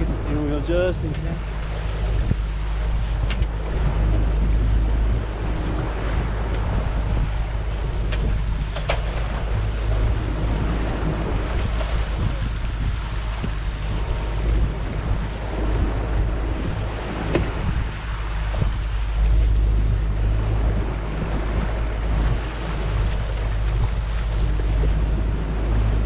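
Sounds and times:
outboard motor running: 0.0 - 26.0
water rushing past hull: 0.0 - 26.0
wind buffeting microphone: 0.0 - 26.0.

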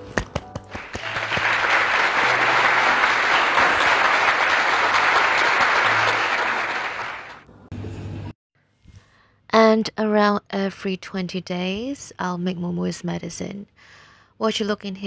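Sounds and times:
applause: 0.7 - 7.5.

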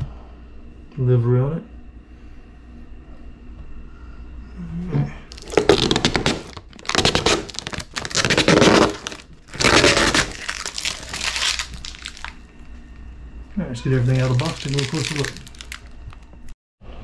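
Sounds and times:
cardboard box being torn open: 5.3 - 12.3, 14.2 - 15.8
packaging crinkling: 5.3 - 12.4, 14.0 - 16.3.

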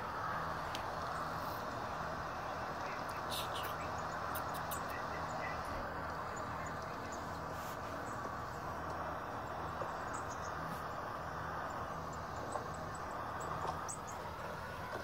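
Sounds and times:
steady outdoor hiss: 0.0 - 15.0
faint high bird chirps: 9.4 - 10.9.

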